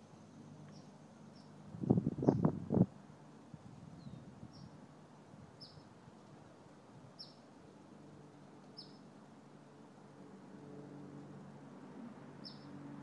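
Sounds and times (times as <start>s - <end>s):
small bird chirping: 0.7s - 1.6s, 5.6s - 5.9s, 7.2s - 7.4s, 8.7s - 9.0s, 12.4s - 12.7s.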